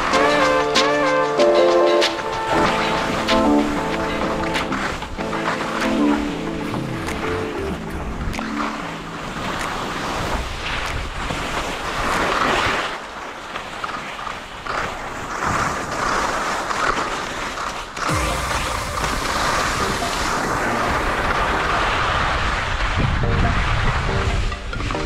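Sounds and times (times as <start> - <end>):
skis scraping over snow: 0.0 - 25.0
wind noise on microphone: 18.0 - 25.0.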